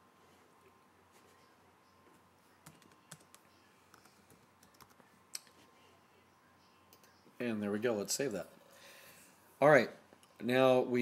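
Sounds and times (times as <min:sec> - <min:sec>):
computer keyboard typing: 0:02.6 - 0:05.0.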